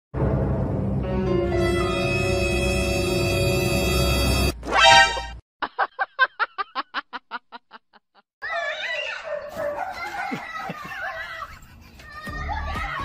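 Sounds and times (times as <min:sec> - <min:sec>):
person laughing: 0:05.6 - 0:08.2, 0:10.0 - 0:12.0.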